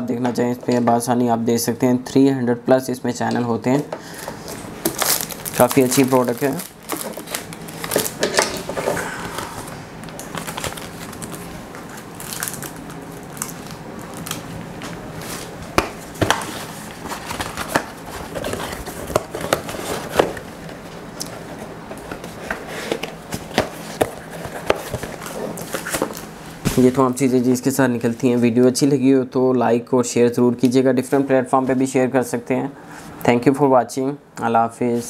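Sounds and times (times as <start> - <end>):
plastic packaging crinkling: 4.1 - 20.5.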